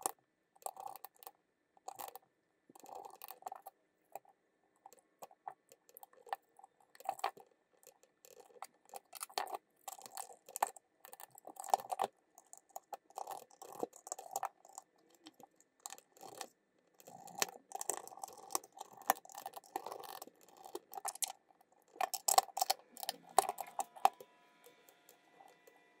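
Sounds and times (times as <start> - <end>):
plastic parts clicking and tapping: 2.8 - 24.2.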